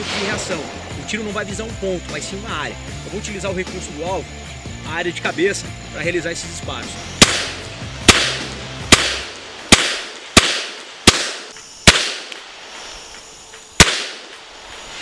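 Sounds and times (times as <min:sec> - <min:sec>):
pistol shots with echo: 0:07.2 - 0:12.4, 0:13.8 - 0:14.3.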